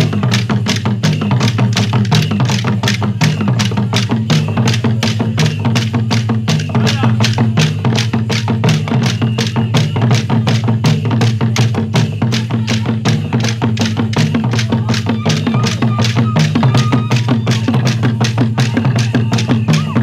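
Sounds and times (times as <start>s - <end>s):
drums: 0.0s - 20.0s
voices singing over beat: 1.4s - 20.0s.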